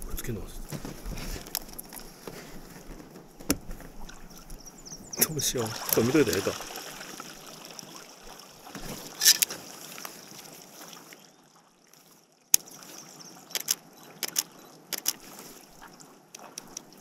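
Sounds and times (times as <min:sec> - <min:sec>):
quiet lapping water: 0:00.0 - 0:17.0
kayak and paddle clicks and knocks: 0:01.4 - 0:04.6, 0:08.7 - 0:09.6, 0:13.5 - 0:17.0.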